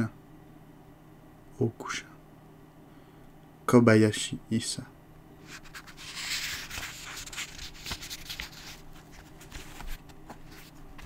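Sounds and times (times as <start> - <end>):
book page turning: 5.4 - 11.0.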